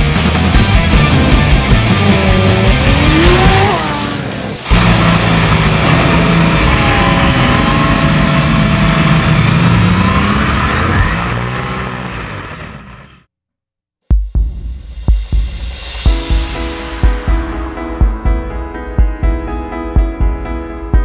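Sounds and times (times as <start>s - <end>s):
race car engine revving: 0.3s - 13.3s.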